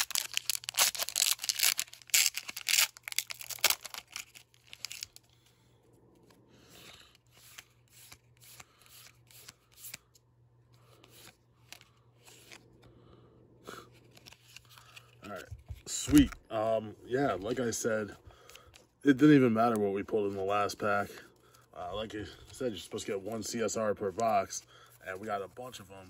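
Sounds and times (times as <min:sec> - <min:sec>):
foil wrapper crinkling and tearing: 0:00.0 - 0:05.3
cards sliding with soft swishes: 0:06.1 - 0:13.0, 0:13.7 - 0:16.3.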